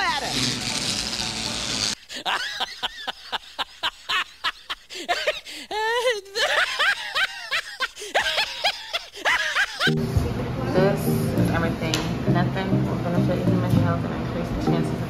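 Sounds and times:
high-pitched laughter: 2.0s - 10.1s.

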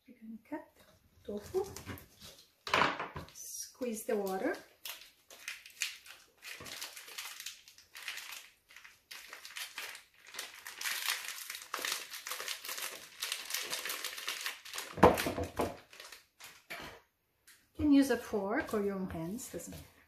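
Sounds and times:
plastic packaging crinkling: 3.8s - 16.8s.

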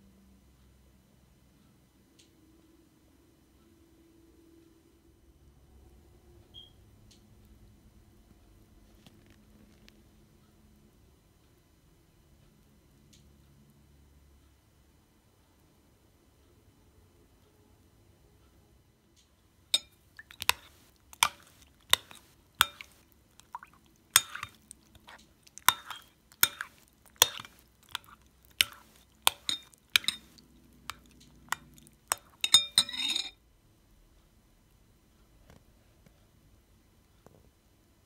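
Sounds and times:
water splashing: 19.8s - 33.3s
spoon clinking against glass bowl: 19.8s - 33.4s.

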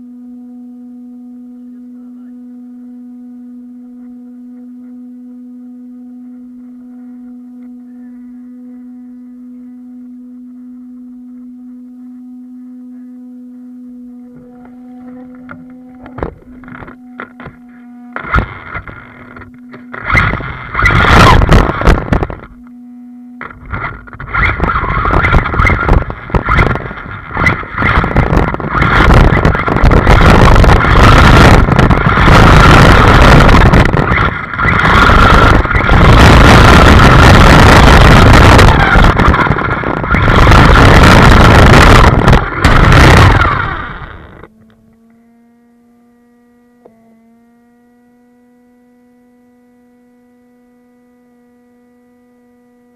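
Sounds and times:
electric motor whine: 0.0s - 52.9s
low hum: 0.0s - 52.9s
rc car driving over dirt: 18.2s - 22.6s, 23.4s - 44.6s
wind rush: 18.2s - 22.6s, 23.4s - 44.5s.

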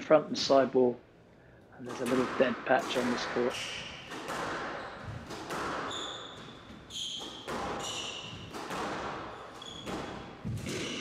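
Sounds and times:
squash ball cracks: 1.9s - 11.0s
shoes squeaking on wooden floor: 3.6s - 11.0s.

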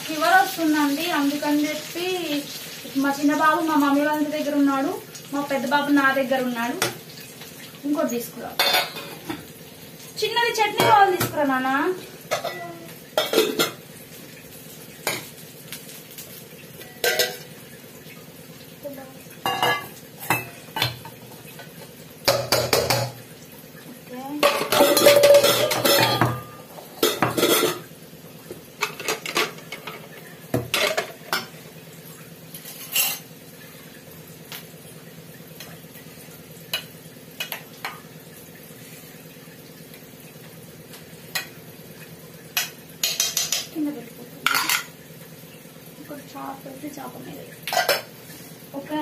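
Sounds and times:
steel dishes clattering: 17.0s - 17.5s, 19.4s - 21.1s, 24.4s - 27.9s.

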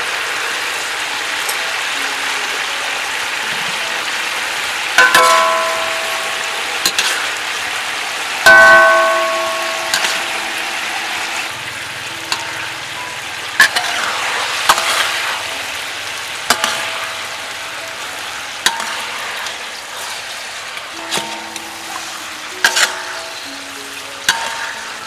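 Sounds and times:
sauce sizzling and bubbling in a wok: 0.0s - 25.0s
ladle clinking against a wok: 5.0s - 7.4s, 8.5s - 15.2s, 21.0s - 25.0s.

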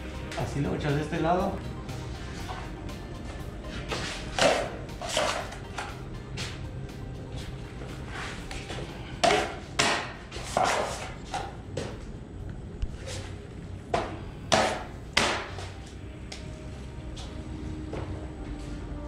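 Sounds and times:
drywall knife slapping and scraping: 3.9s - 5.6s, 9.2s - 11.5s.

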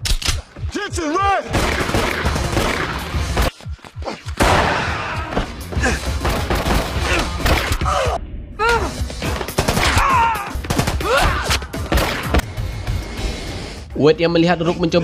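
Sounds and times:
action music: 0.0s - 15.0s
gunfire: 1.5s - 3.5s, 4.4s - 5.0s.

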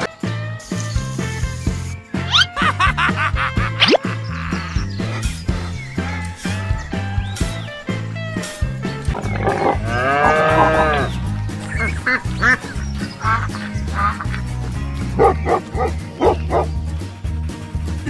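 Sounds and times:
background music with steady beat: 0.0s - 18.0s
long animal call: 9.2s - 11.2s
duck quacks: 11.7s - 14.4s
dog barks: 15.2s - 16.7s.

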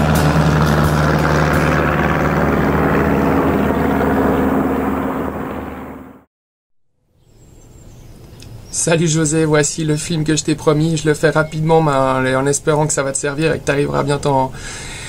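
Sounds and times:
propeller airplane droning overhead: 0.0s - 6.3s.

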